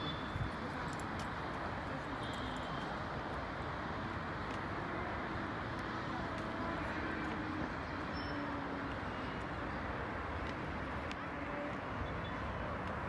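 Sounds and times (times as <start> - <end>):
traffic hum: 0.0 - 13.0.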